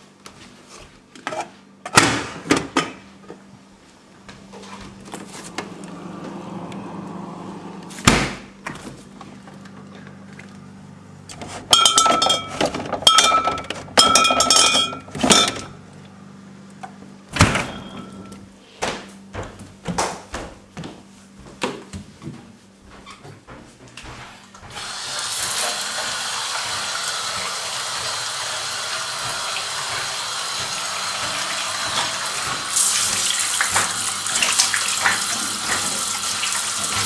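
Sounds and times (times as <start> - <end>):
steady low hum: 3.3 - 24.7
clattering ringing clinks: 11.8 - 15.7.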